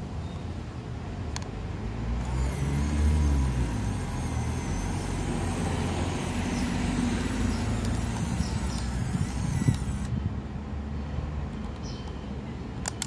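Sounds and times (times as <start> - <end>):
vehicle engine running: 2.2 - 10.2.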